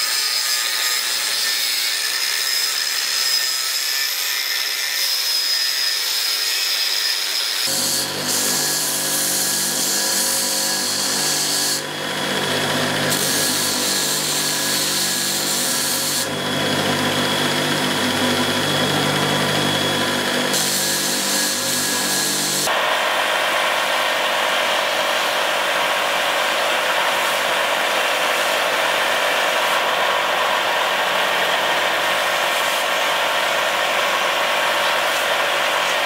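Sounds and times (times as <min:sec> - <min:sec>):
angle grinder whine: 0:07.2 - 0:36.0
belt grinder motor hum: 0:07.7 - 0:27.1.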